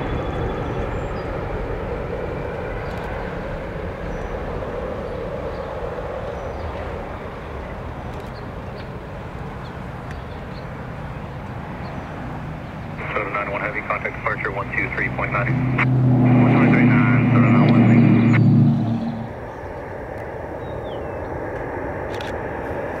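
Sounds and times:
jet engine rumble: 0.0 - 23.0.

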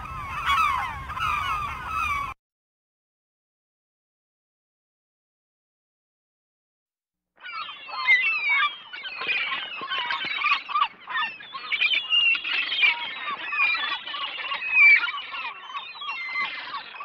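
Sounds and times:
gulls squawking: 0.0 - 2.4, 7.4 - 17.0.

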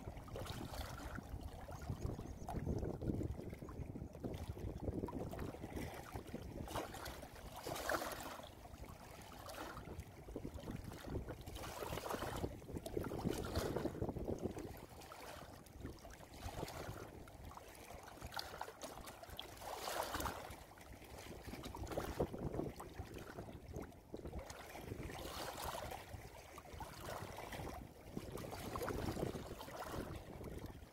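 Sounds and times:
stream gurgling over rocks: 0.0 - 0.7.

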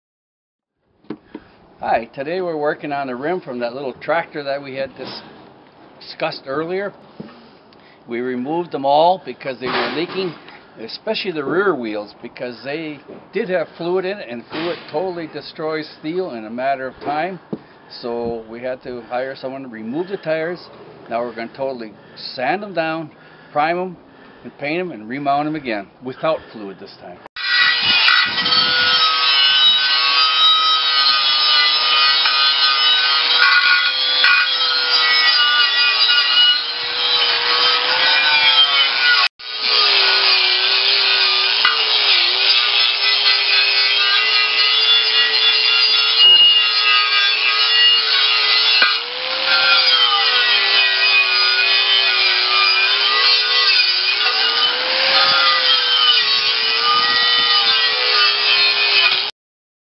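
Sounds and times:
wire wheel grinder scouring metal: 27.4 - 59.3.

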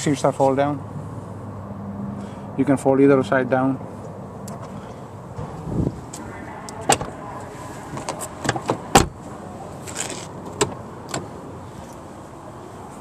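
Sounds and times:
car doors and latches clicking: 6.7 - 7.1, 7.9 - 9.2, 9.8 - 11.4.

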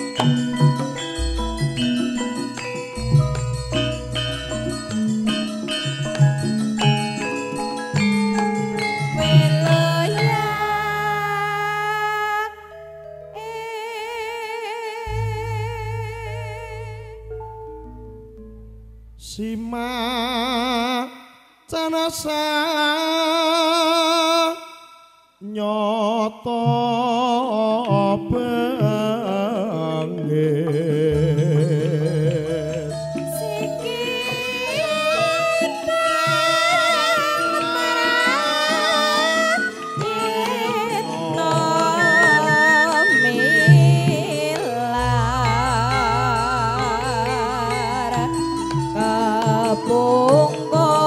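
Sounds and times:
gamelan playing: 0.0 - 14.4, 15.0 - 19.9, 27.7 - 51.0
woman singing: 9.1 - 17.4, 19.2 - 24.7, 25.4 - 51.0.

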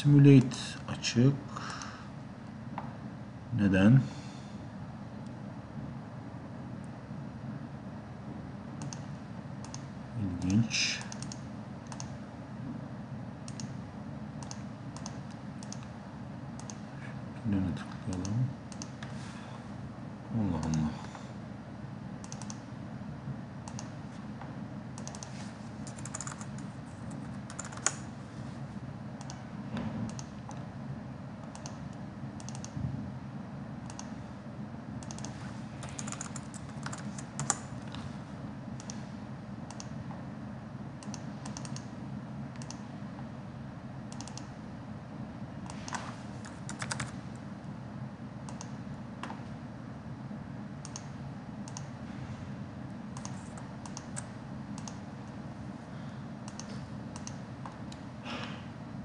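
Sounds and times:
steady low hum: 0.0 - 59.0
mouse clicks: 8.8 - 9.0, 22.2 - 22.6, 32.4 - 32.8, 41.0 - 41.9, 42.6 - 42.8, 44.1 - 44.5
keyboard typing: 22.2 - 22.6, 25.0 - 28.0, 35.0 - 37.6, 45.9 - 47.1, 53.2 - 55.0.

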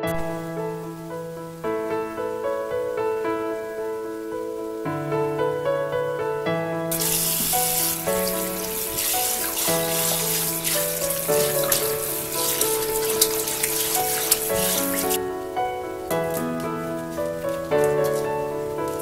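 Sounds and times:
tap water running into steel sink: 6.9 - 15.2.

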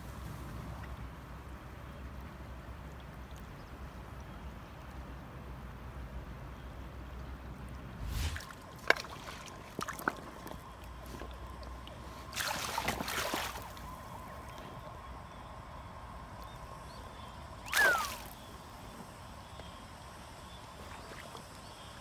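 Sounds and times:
river water over stones: 7.5 - 16.5, 17.4 - 18.7, 19.6 - 22.0
water splash: 8.0 - 10.2, 12.3 - 13.8, 17.6 - 18.4.

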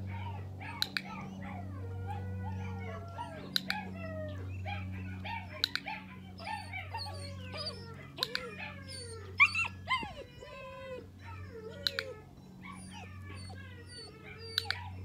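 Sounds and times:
puppies whining and yelping: 0.0 - 15.0
steady low hum: 0.0 - 15.0.

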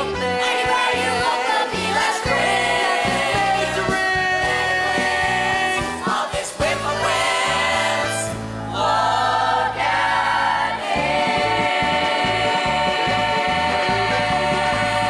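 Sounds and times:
young voices singing together: 0.1 - 15.0.

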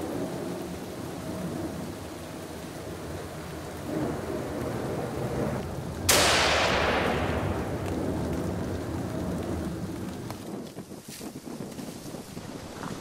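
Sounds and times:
rifle shot echoing: 6.1 - 7.9.

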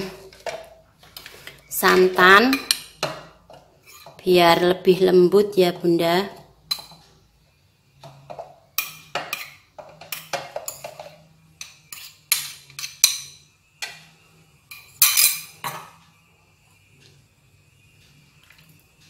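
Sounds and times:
metal spoon scraping ceramic bowl: 2.5 - 4.2, 8.1 - 15.8.

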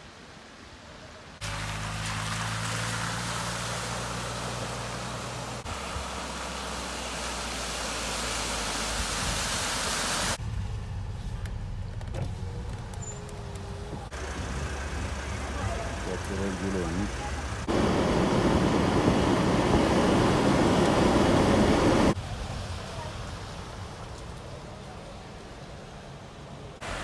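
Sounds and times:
engine idling in traffic: 0.9 - 27.0
water spray from tyres: 1.4 - 10.4, 14.1 - 26.0, 26.8 - 27.0
engine humming: 1.4 - 27.0.

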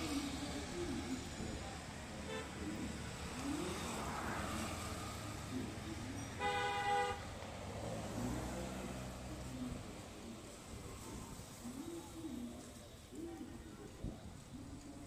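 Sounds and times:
street traffic: 0.0 - 15.0
vehicle horn honk: 2.3 - 2.5, 6.4 - 7.2.

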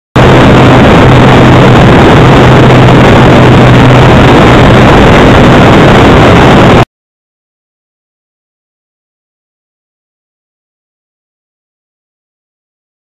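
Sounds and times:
wind rush on microphone: 0.2 - 6.9.

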